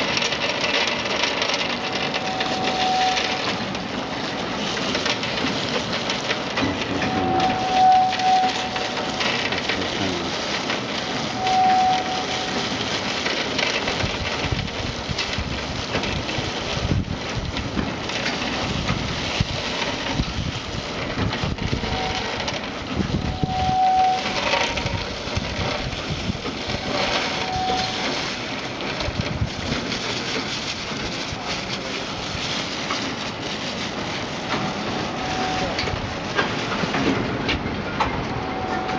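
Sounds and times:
peanuts rattling onto steel: 0:00.0 - 0:06.8
fryer machine running: 0:00.0 - 0:38.9
short high squeal: 0:02.2 - 0:03.6, 0:06.8 - 0:10.3, 0:11.2 - 0:12.8, 0:23.3 - 0:24.9, 0:26.8 - 0:28.2, 0:34.9 - 0:35.9.

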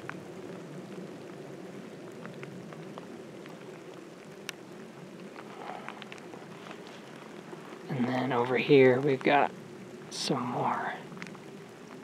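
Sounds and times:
faint outdoor background noise: 0:00.0 - 0:12.0
light ticks: 0:02.1 - 0:04.6.

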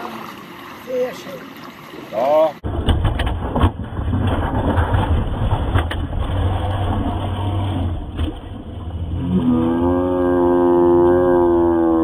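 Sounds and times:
boat sliding down slipway: 0:00.0 - 0:12.0
droning tone with overtones: 0:02.7 - 0:12.0.

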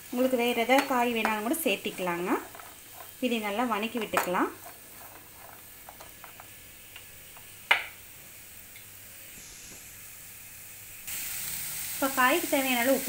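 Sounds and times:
spatula scraping frying pan: 0:00.2 - 0:06.5.

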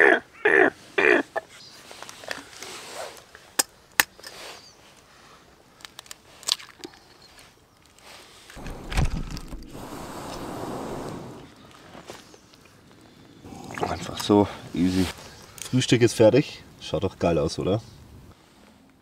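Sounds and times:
steady soft hiss: 0:08.2 - 0:13.4
low thump and rumble: 0:08.6 - 0:09.8.

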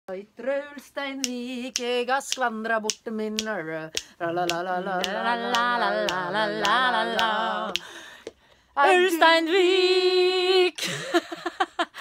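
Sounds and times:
woman singing a capella: 0:00.1 - 0:08.0, 0:08.8 - 0:10.9
finger snaps: 0:01.2 - 0:05.2, 0:06.0 - 0:08.4.

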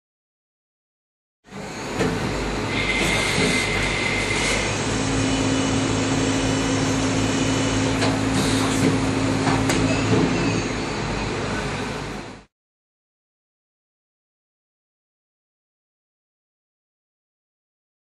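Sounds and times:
low machine hum: 0:01.6 - 0:12.4.

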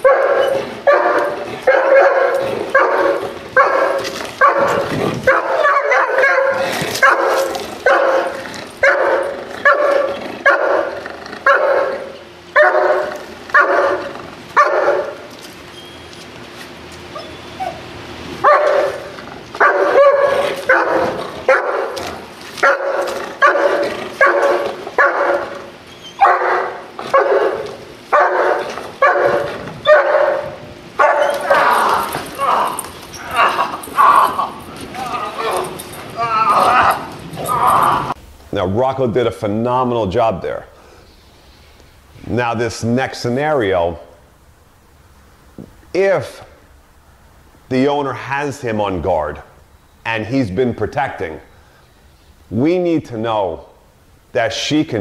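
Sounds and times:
dog barking: 0:00.0 - 0:15.3, 0:18.4 - 0:34.6.

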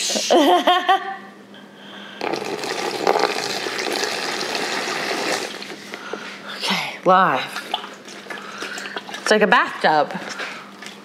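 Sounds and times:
water pouring into plastic box: 0:02.2 - 0:05.9.

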